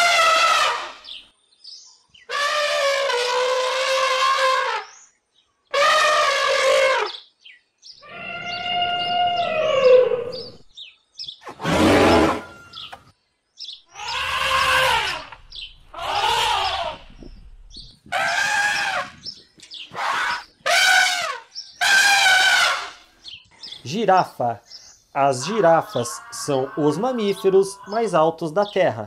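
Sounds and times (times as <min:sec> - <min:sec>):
elephant trumpeting: 0:00.0 - 0:01.1, 0:02.3 - 0:04.9, 0:05.7 - 0:07.1, 0:11.5 - 0:12.8, 0:13.9 - 0:17.3, 0:18.1 - 0:19.2, 0:19.9 - 0:23.1, 0:25.2 - 0:28.3.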